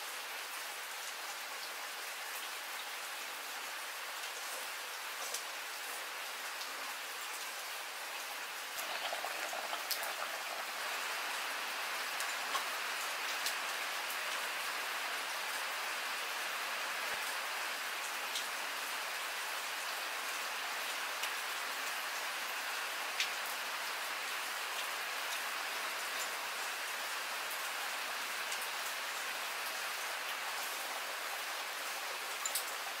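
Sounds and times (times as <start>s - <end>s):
steady rain falling: 0.0s - 33.0s.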